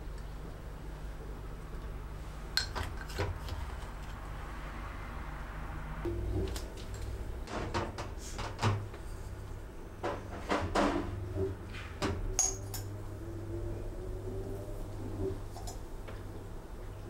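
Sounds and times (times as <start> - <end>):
metal spoon clinking against glass jar: 12.4 - 12.9.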